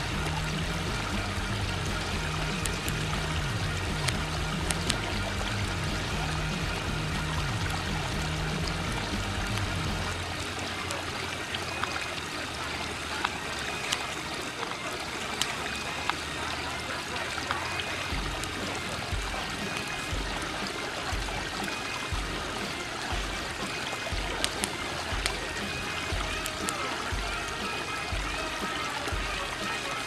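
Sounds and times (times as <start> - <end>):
sharp clicks: 0.0 - 10.2, 17.4 - 30.0
trickling pond water: 0.0 - 30.0.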